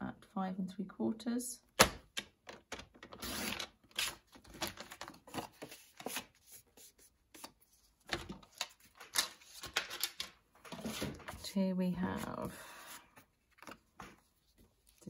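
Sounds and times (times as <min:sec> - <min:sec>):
paper rustling: 0:03.0 - 0:15.0.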